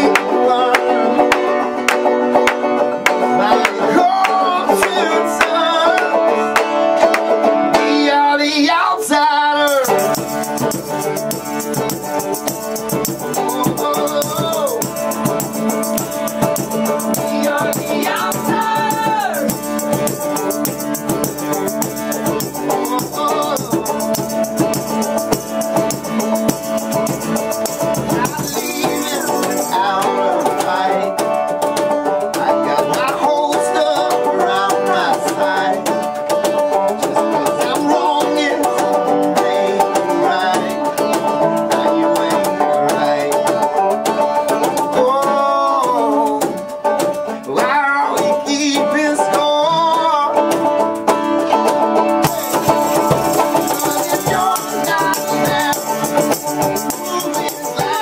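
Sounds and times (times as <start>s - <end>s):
man singing: 0.0s - 50.7s, 52.2s - 58.0s
strummed acoustic guitar: 0.0s - 58.0s
shaker rattling: 9.7s - 29.8s, 52.2s - 58.0s.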